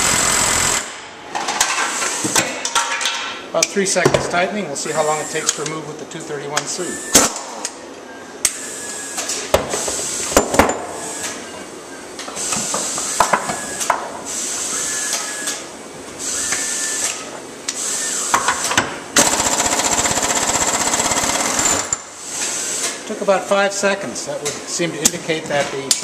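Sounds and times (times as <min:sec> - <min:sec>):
pneumatic impact wrench hammering: 0:00.0 - 0:02.4, 0:09.5 - 0:11.4, 0:16.2 - 0:23.0.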